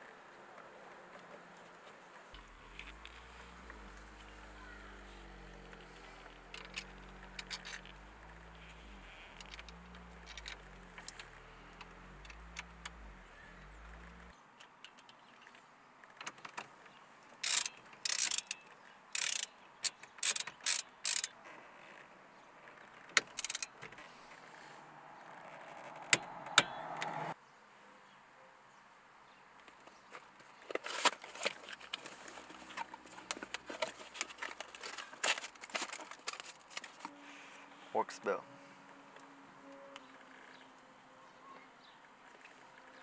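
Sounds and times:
socket ratchet clicking: 17.4s - 18.6s, 19.2s - 21.3s, 23.2s - 23.7s.

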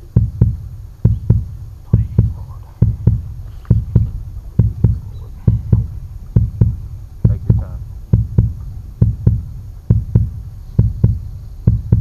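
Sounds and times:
heartbeat double thump: 0.0s - 12.0s.

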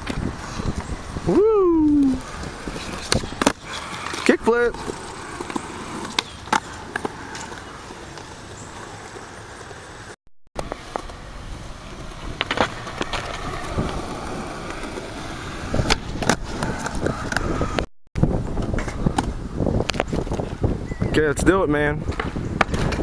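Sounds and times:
skateboard wheels rolling on concrete: 0.0s - 23.0s
skateboard clacking on ground: 12.1s - 15.1s.

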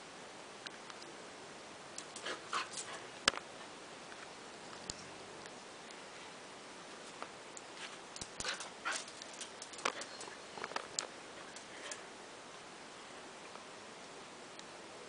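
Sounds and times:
steady hiss: 0.0s - 15.0s
dog claws clicking on tiles: 8.2s - 12.0s.

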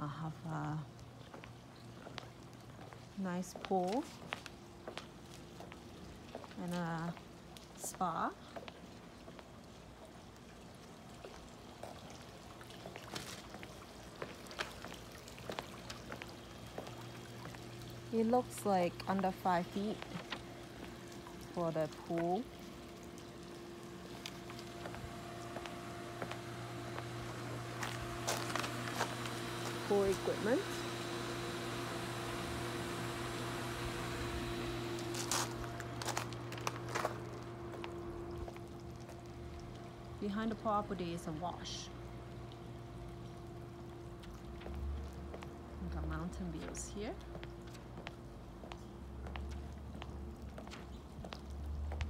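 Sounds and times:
low steady hum: 0.0s - 52.0s
pool water trickling and lapping: 0.0s - 52.0s
water drips and splashes: 0.8s - 31.3s, 34.8s - 52.0s
footsteps on gravel: 27.0s - 30.3s, 35.0s - 38.7s.

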